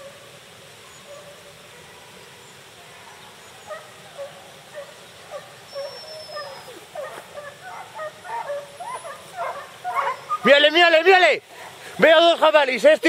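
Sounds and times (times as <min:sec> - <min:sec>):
hunting dogs baying: 0:03.6 - 0:10.9.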